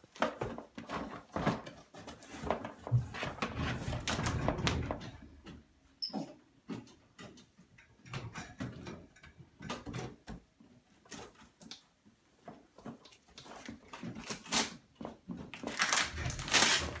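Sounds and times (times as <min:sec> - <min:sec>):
knocks and clatters of toy pieces: 0:15.2 - 0:17.0.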